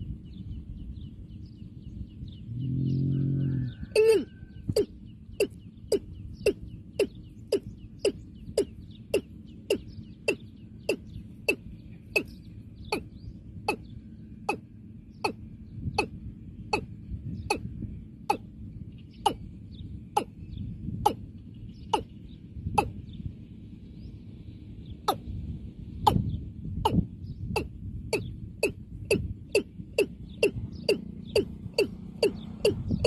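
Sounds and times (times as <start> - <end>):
watercock calling: 4.0 - 13.1, 21.9 - 22.1, 27.6 - 33.0.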